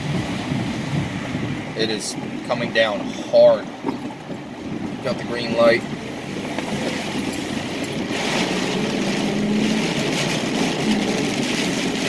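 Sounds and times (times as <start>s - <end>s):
car engine hum: 0.0s - 12.0s
rain on windshield: 0.0s - 12.0s.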